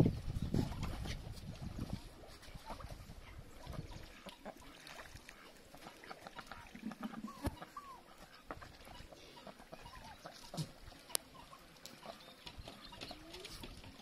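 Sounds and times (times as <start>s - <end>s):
ducks splashing in water: 0.1s - 14.0s
duck chirping calls: 7.3s - 14.0s.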